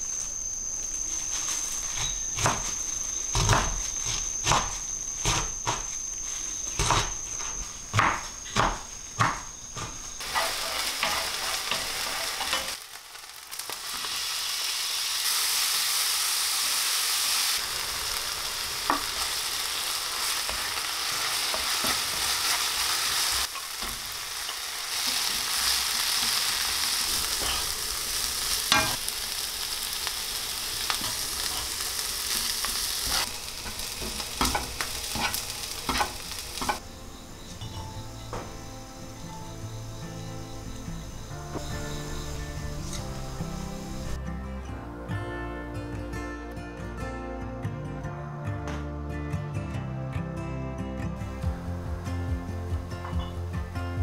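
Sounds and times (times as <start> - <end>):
food sizzling in a pan: 0.0 - 44.2
knife chopping on wooden board: 7.9 - 10.0
utensil scraping a pan: 10.2 - 12.8, 33.0 - 36.8.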